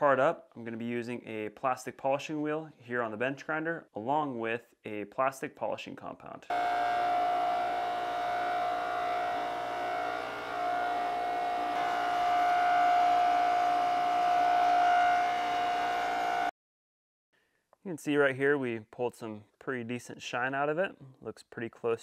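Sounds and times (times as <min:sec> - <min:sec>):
bench grinder whine: 0:06.5 - 0:16.5.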